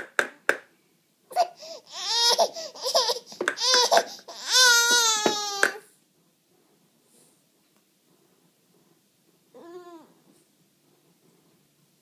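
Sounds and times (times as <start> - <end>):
baby crying: 1.3 - 5.8.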